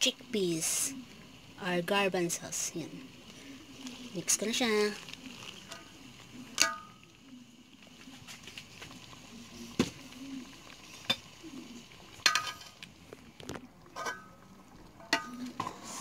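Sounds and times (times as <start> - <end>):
faint sizzling: 0.0 - 16.0
metal spoon scraping metal pot: 14.0 - 14.3.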